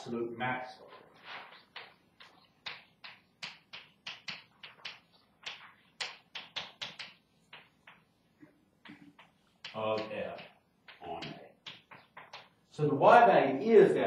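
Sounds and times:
chalk tapping on blackboard: 1.6s - 8.2s, 8.8s - 12.7s.

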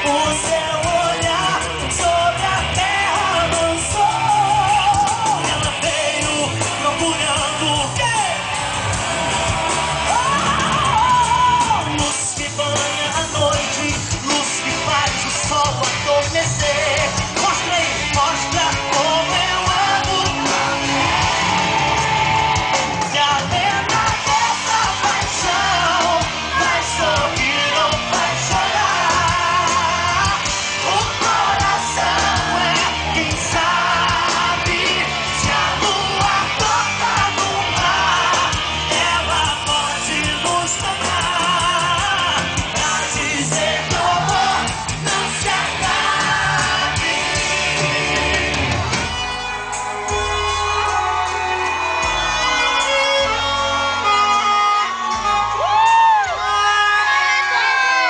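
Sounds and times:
man singing: 0.0s - 8.5s, 10.1s - 21.4s, 22.8s - 49.0s
crowd yelling along: 0.0s - 58.0s
electric guitar: 0.0s - 58.0s
live band music over pa: 0.0s - 58.0s.

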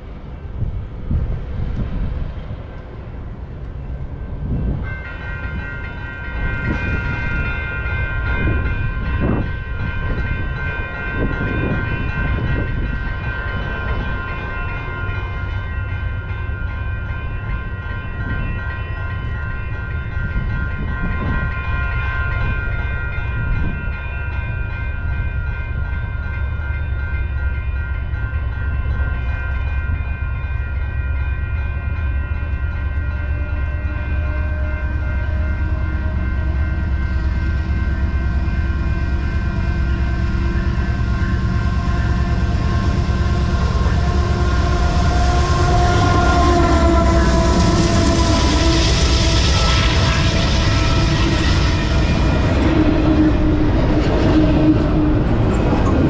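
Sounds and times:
wind rumble on microphone: 0.0s - 16.3s, 17.0s - 26.2s.

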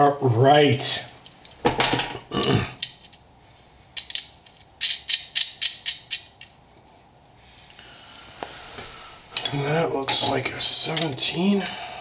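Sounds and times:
metal hardware clicking and rattling: 1.2s - 3.2s, 4.0s - 6.6s, 9.3s - 11.6s.

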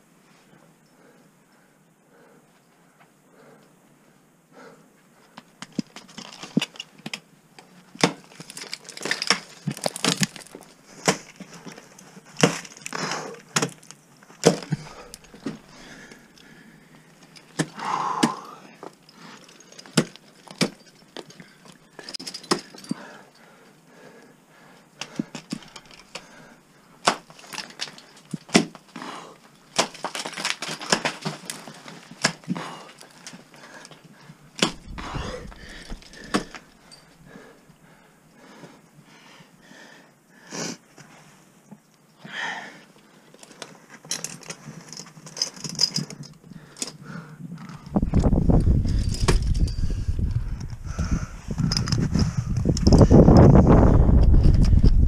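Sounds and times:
ice picks striking ice: 8.0s - 11.4s, 12.4s - 15.6s, 19.8s - 20.8s, 29.7s - 32.6s, 35.6s - 36.6s
person breathing: 14.7s - 19.8s, 22.8s - 26.7s, 32.6s - 40.8s, 46.5s - 53.4s
climbing hardware jangling: 43.4s - 47.0s, 47.6s - 50.8s, 51.5s - 53.5s.

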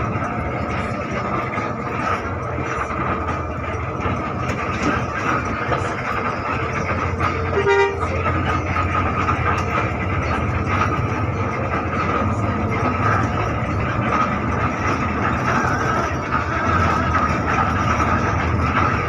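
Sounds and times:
bus engine and road noise: 0.0s - 19.0s
horn toot: 7.6s - 8.2s.

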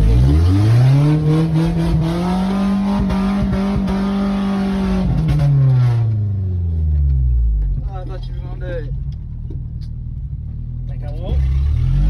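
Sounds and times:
engine revving high: 0.0s - 6.2s, 11.3s - 12.0s.

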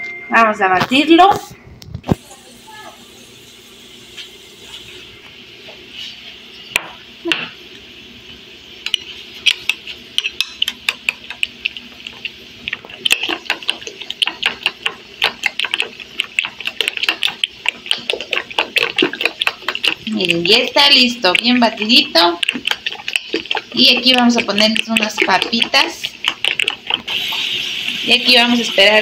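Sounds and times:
utensil clicking against bowl: 8.9s - 27.1s.

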